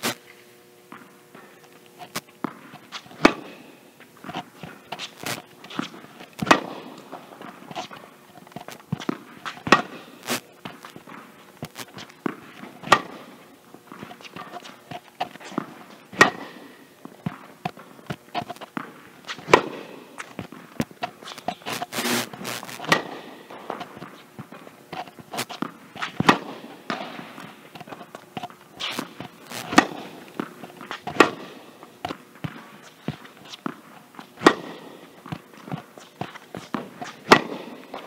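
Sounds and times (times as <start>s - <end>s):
footsteps on hard court: 0.9s - 38.0s
tennis racket hitting ball: 0.9s - 38.0s
ball bouncing on court: 4.3s - 7.2s, 9.0s - 16.6s, 17.2s - 24.7s, 25.4s - 33.8s, 34.4s - 38.0s.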